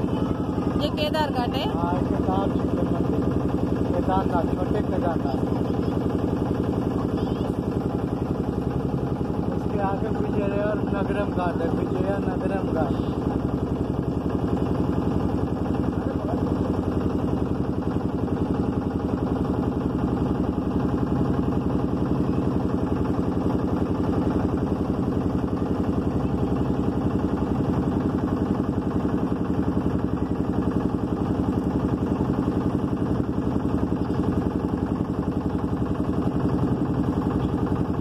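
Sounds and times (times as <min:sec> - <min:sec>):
motorboat engine chugging: 0:00.0 - 0:38.0.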